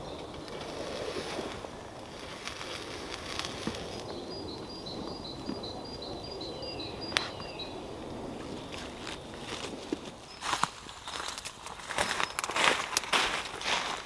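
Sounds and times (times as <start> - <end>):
wood fire crackling and popping: 0.0 - 5.8.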